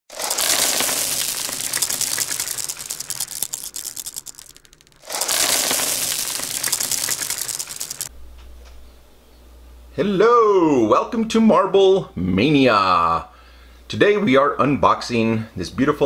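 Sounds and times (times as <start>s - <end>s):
rattling clatter of small clicks: 0.2s - 8.1s.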